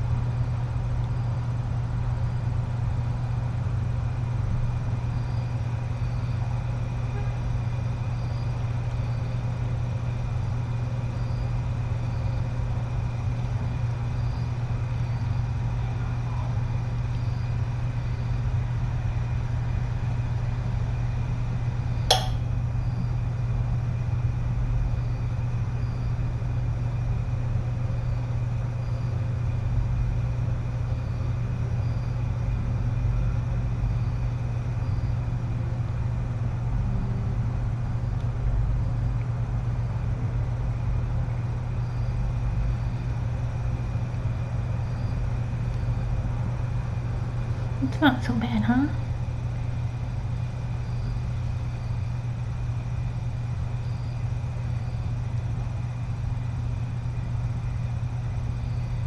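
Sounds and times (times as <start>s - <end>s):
low hum: 21.1s - 24.3s
sharp click: 22.1s - 22.5s.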